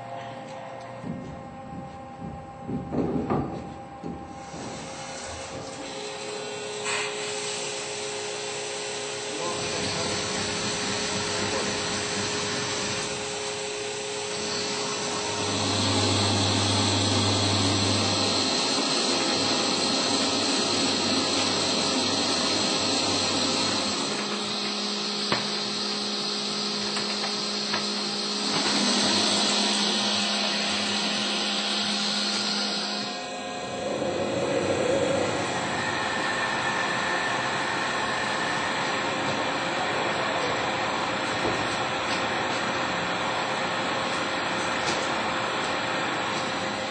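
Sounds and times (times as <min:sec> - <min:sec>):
lathe cutting metal: 0:04.5 - 0:46.9
coolant spray hiss: 0:04.7 - 0:33.1.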